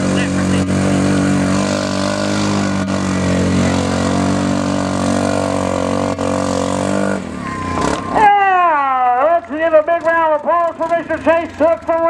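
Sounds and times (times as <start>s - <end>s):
atv engine at high revs: 0.0s - 8.3s.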